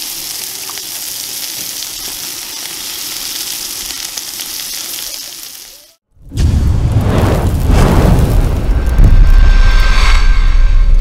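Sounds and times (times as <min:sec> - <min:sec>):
patties sizzling on a griddle: 0:00.0 - 0:06.0.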